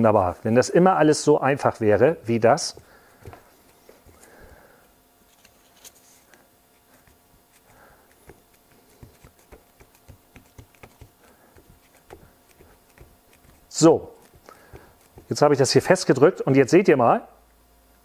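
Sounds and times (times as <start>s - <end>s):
fingertips tapping foam strips: 2.5s - 4.6s, 5.3s - 16.2s.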